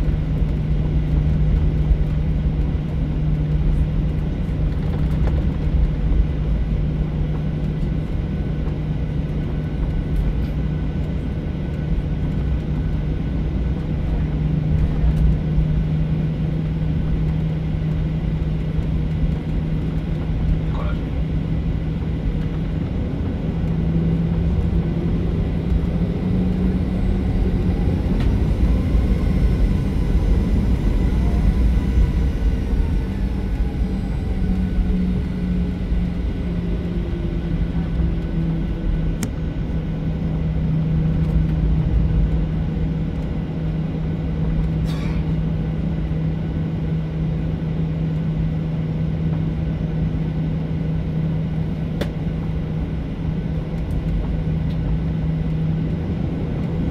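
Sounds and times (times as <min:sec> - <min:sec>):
jet engines droning: 0:00.0 - 0:56.9.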